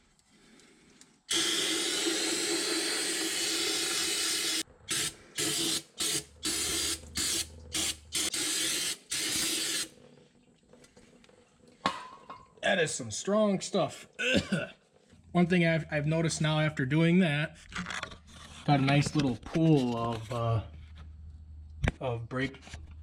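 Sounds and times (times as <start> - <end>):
aerosol can spraying: 1.3 - 9.9.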